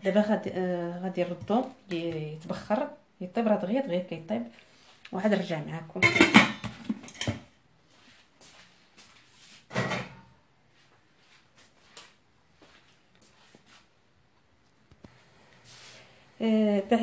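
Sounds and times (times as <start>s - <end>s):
metal pot knock: 6.0s - 7.4s.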